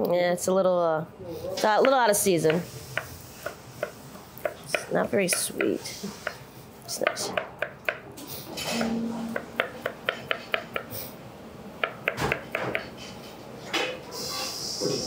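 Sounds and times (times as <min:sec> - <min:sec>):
knife tapping on cutting board: 0:01.8 - 0:06.4, 0:07.0 - 0:08.0, 0:09.4 - 0:10.9, 0:11.8 - 0:12.9.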